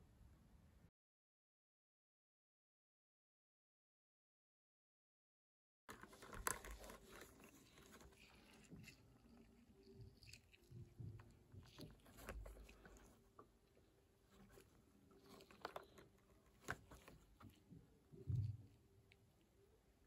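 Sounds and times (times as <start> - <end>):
blister card crinkling in hands: 5.9 - 17.7.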